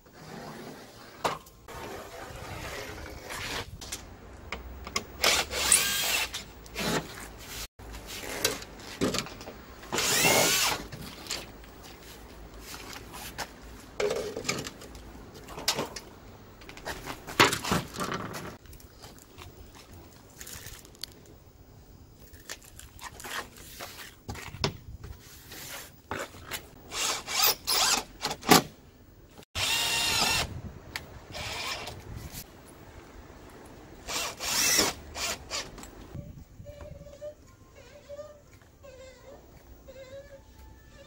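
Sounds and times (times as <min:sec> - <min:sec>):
cordless drill running: 0:10.0 - 0:10.8, 0:29.6 - 0:30.5, 0:31.3 - 0:31.9, 0:34.1 - 0:35.7.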